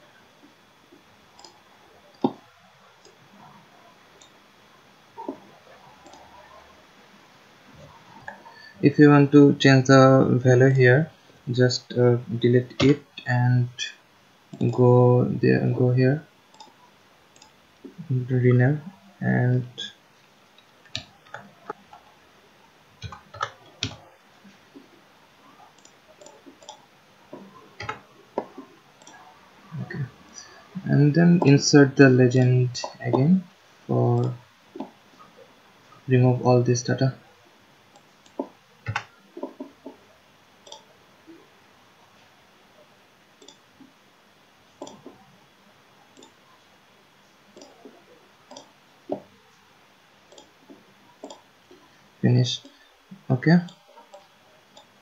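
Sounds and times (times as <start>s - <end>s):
mouse buttons clicking: 44.8s - 45.2s, 47.6s - 47.8s, 48.5s - 49.2s, 50.3s - 50.6s, 51.2s - 51.4s.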